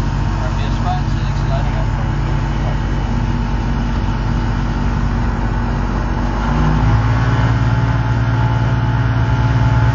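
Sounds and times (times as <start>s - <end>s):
aircraft engine drone: 0.0s - 9.9s.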